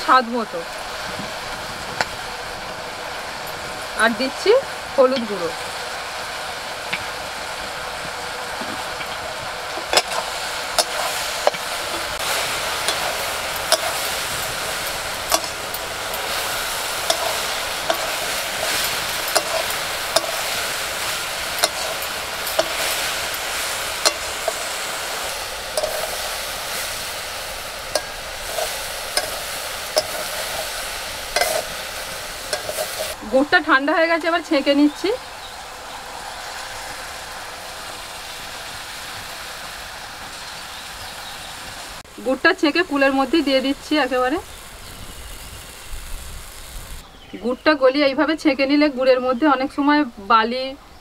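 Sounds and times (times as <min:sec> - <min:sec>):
fruit sizzling in hot oil: 0:00.0 - 0:51.0
metal spatula knocking pan: 0:12.9 - 0:14.1, 0:17.0 - 0:20.5, 0:21.5 - 0:23.0, 0:24.0 - 0:24.6, 0:27.9 - 0:30.6, 0:31.3 - 0:31.7, 0:32.5 - 0:33.1.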